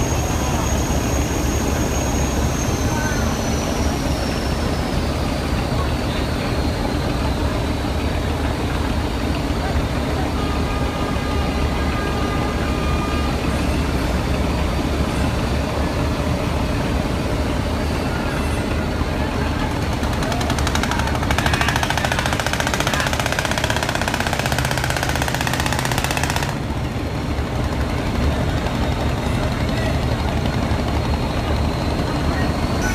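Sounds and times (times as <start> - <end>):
boat engine running: 18.5 - 32.9
fast rattling clatter: 19.8 - 31.2.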